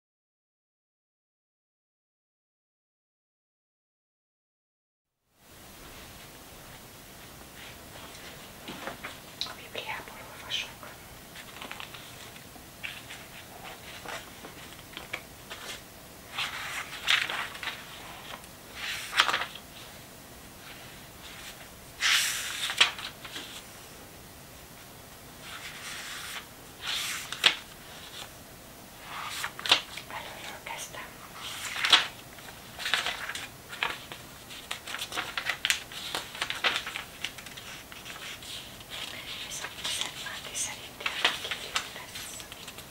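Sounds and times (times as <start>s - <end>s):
paper pages turning: 11.4s - 20.0s, 20.6s - 23.7s, 25.4s - 28.3s, 29.0s - 30.1s, 31.3s - 42.9s.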